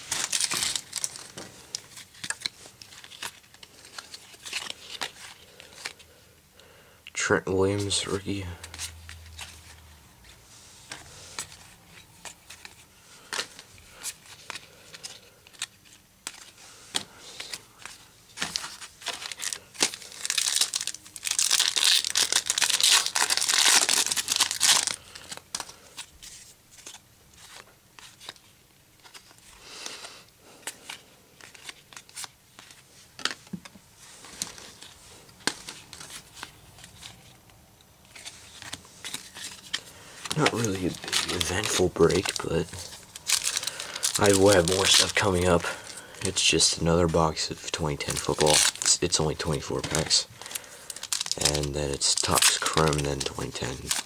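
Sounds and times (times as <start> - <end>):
foil wrapper crinkling and tearing: 0.0 - 6.0, 17.4 - 26.1, 38.1 - 54.0.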